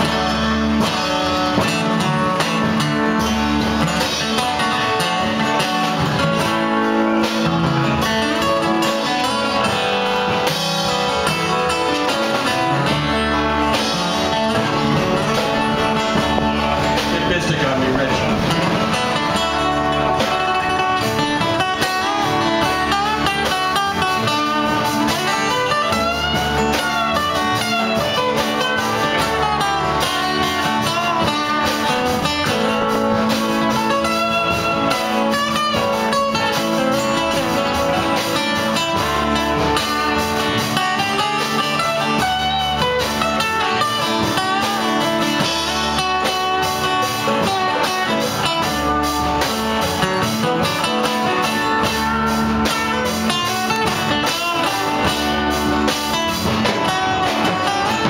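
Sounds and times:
acoustic guitars strummed: 0:00.0 - 0:58.0
banjo: 0:00.0 - 0:58.0
upright bass: 0:00.0 - 0:58.0.

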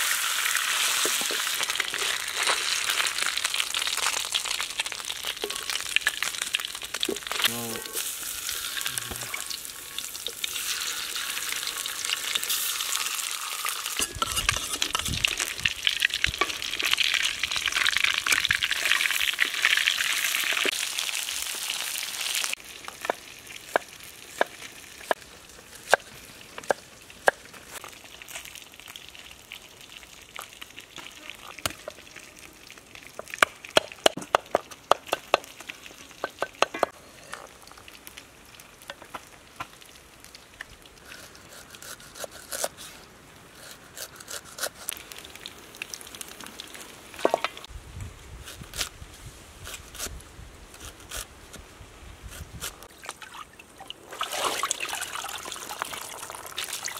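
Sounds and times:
fish sizzling in hot oil: 0:00.0 - 0:25.9.

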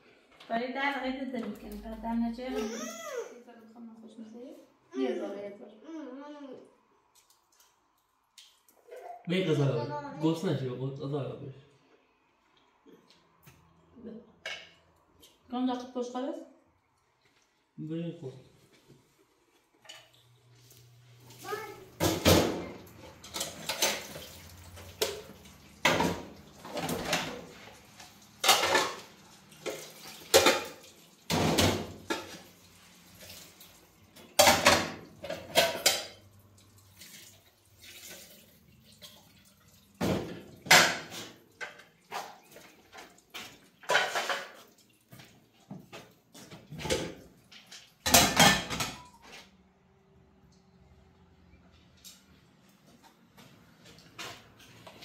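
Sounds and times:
pots and dishes clattering: 0:14.4 - 0:14.9, 0:22.0 - 0:33.5, 0:34.2 - 0:36.4, 0:39.9 - 0:49.2.

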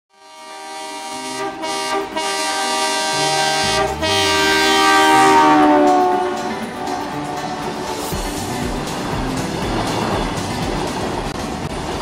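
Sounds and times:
train horn blast: 0:00.1 - 0:08.0.

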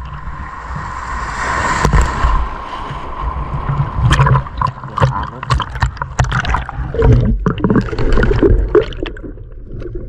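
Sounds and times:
low buffeting water rumble: 0:00.0 - 0:10.0
sea water sloshing and splashing: 0:00.7 - 0:10.0.

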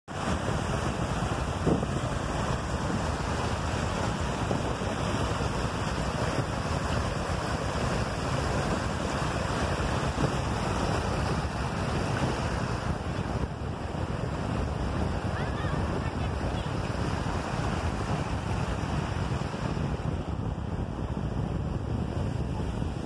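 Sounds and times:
water rushing over rocks: 0:00.1 - 0:19.5.

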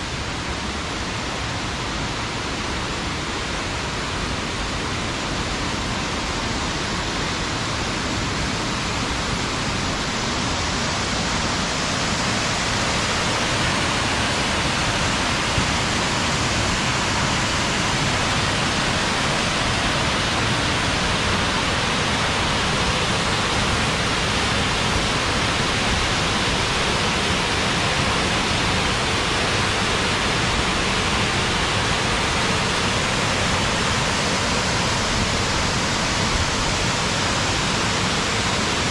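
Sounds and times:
waterfall rushing: 0:00.0 - 0:38.9.

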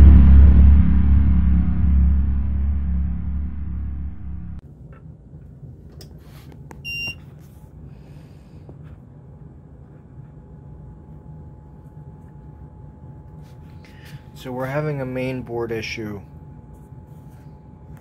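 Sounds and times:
steady low hum: 0:00.0 - 0:04.6.

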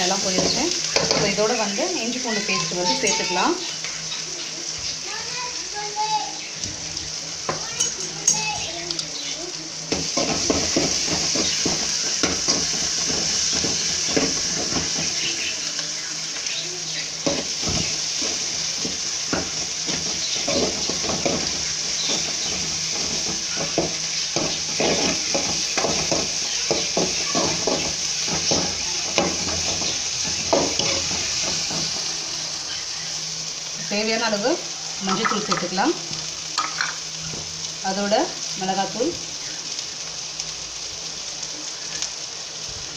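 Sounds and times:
vegetables sizzling in oil: 0:00.0 - 0:42.9.

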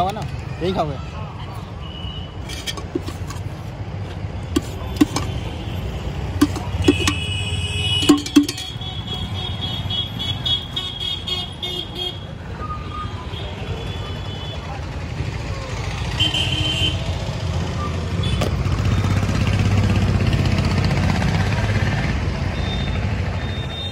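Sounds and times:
road traffic rumble: 0:00.0 - 0:23.9
spoon clinking against metal tin: 0:02.4 - 0:03.5, 0:04.6 - 0:05.4, 0:06.4 - 0:07.4, 0:08.0 - 0:08.8
vehicle horn: 0:06.5 - 0:12.2, 0:16.2 - 0:17.0.

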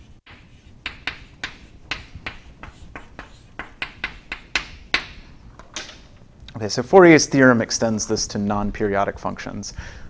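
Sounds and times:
chalk writing on chalkboard: 0:00.0 - 0:05.2.

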